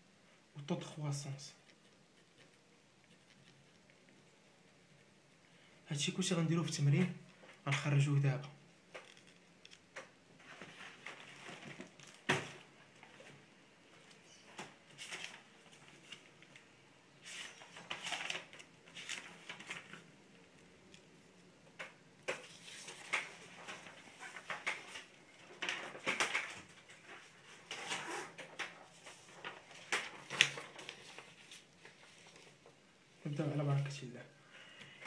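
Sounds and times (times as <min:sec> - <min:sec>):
handling rustling and scraping: 0:08.9 - 0:32.8.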